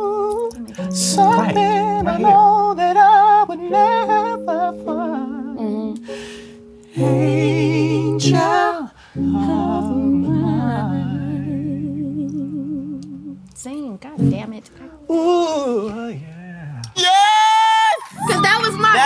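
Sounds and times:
person singing with vibrato: 0.0 - 13.4
sustained keyboard chords: 0.0 - 15.4, 18.2 - 19.0.

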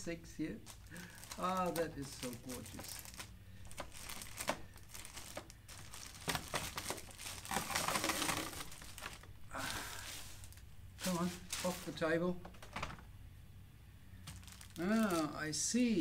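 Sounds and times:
plastic bag crinkling: 0.6 - 12.0, 14.2 - 15.4.

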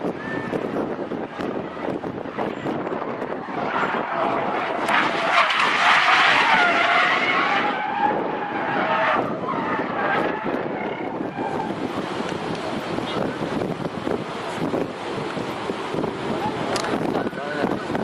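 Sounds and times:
car tyres squealing: 0.0 - 13.7
road and wind noise: 0.0 - 18.0.

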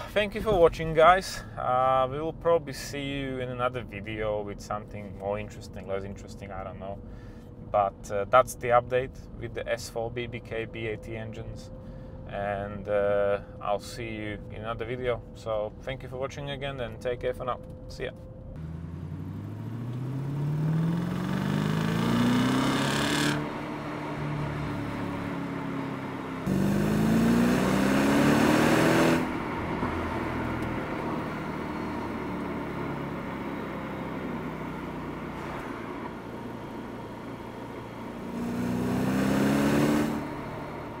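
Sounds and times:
car engine accelerating: 18.5 - 41.0.

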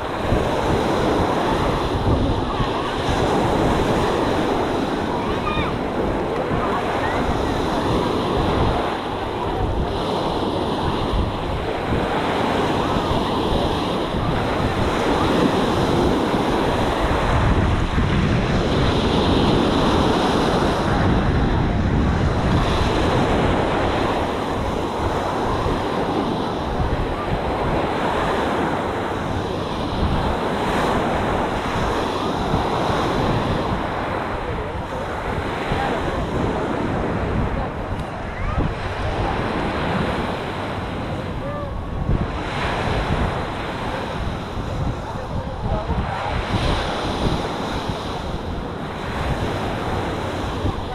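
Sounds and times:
waves washing on sandy shore: 0.0 - 50.9
wind buffeting microphone: 0.0 - 50.9.

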